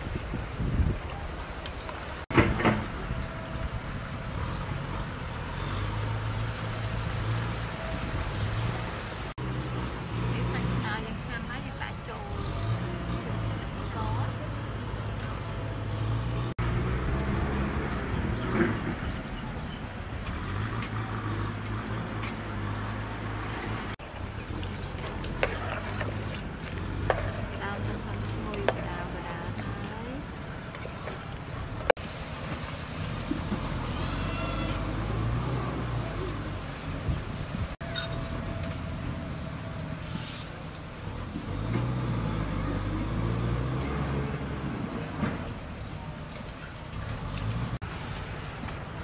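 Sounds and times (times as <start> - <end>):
low engine hum: 0.0 - 49.0
metal ladle clinking on pot: 37.8 - 38.3.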